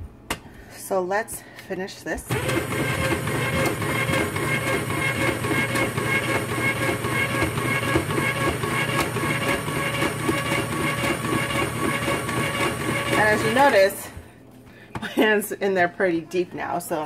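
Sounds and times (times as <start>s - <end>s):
electric slicer motor humming: 2.3s - 13.9s.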